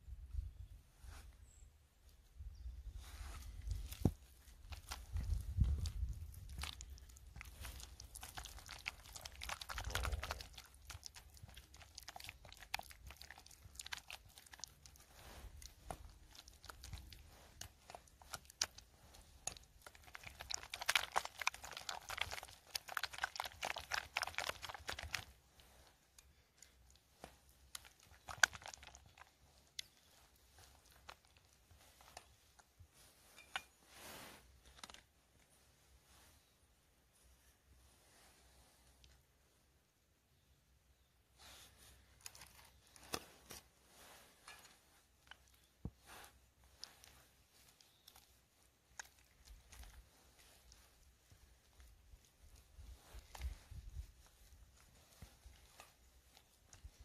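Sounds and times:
spatula beating cream in bowl: 4.7 - 25.8.

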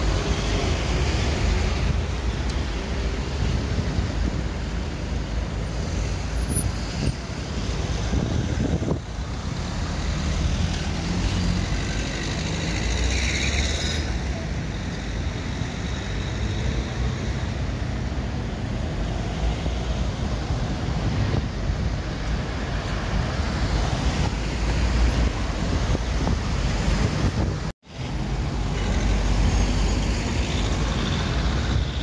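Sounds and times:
traffic rumble: 0.0 - 32.0.

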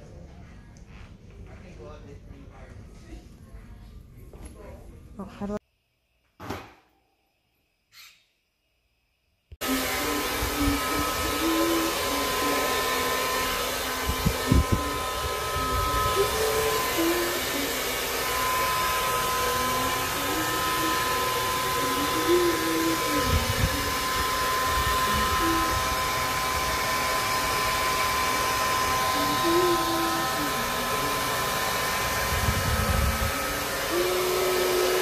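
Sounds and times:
hair dryer blowing: 9.6 - 35.0.

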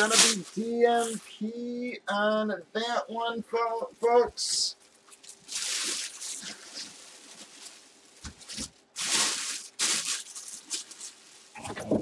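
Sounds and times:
plastic bag crinkling: 0.0 - 1.2, 4.8 - 12.0.

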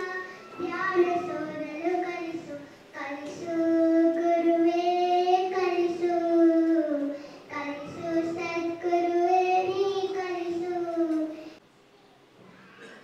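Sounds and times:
girl singing into microphone: 0.0 - 11.6
girl breathing in: 7.1 - 7.5.

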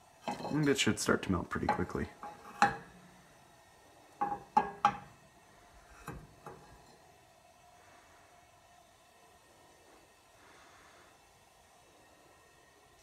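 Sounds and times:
cookware knocking on stovetop: 1.7 - 2.9, 4.2 - 5.1.

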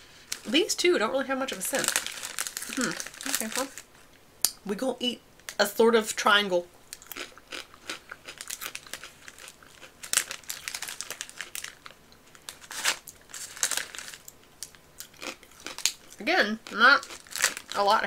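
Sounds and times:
plastic snack bag crinkling: 0.3 - 4.0, 6.9 - 18.0
chips crunching: 1.5 - 3.9, 6.9 - 18.0.

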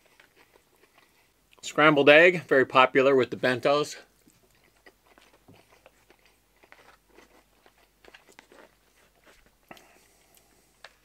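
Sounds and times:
close-up chewing: 0.0 - 1.7, 4.0 - 11.0.

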